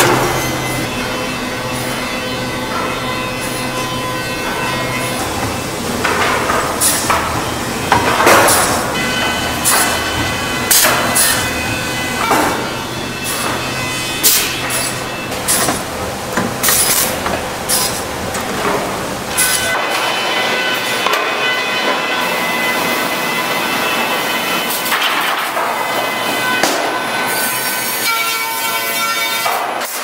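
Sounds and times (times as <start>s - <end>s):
machinery whining: 0.0s - 29.8s
boards knocking and clattering: 5.1s - 22.0s.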